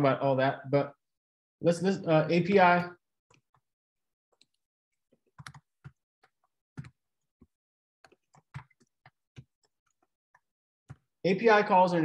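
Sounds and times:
typing on computer keyboard: 0:05.2 - 0:07.0, 0:08.0 - 0:11.1.

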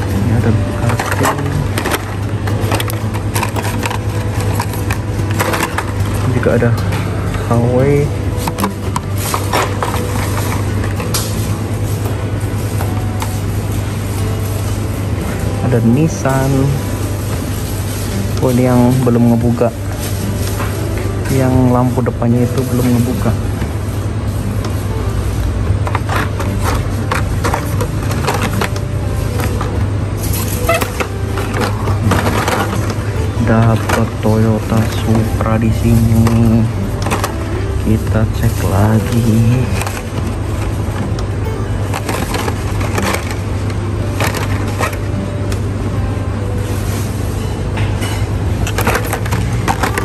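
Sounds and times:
plastic packaging crinkling: 0:00.0 - 0:50.0.

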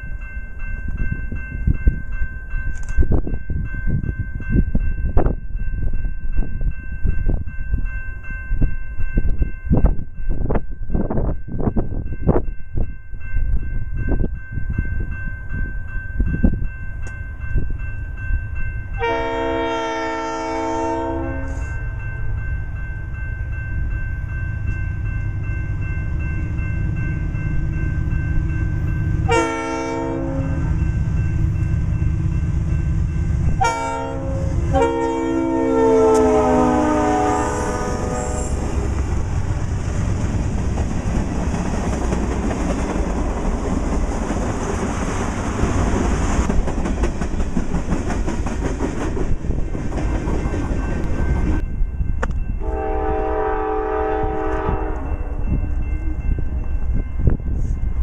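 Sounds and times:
locomotive air horn blasts: 0:19.0 - 0:21.8, 0:29.3 - 0:30.7, 0:33.6 - 0:38.8, 0:52.6 - 0:55.4
train wheels clicking over rail joints: 0:38.9 - 0:51.6.

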